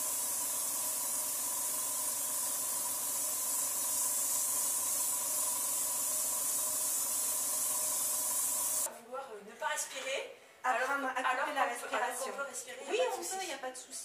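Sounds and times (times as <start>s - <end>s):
airbrush spraying hiss: 0.0s - 8.9s.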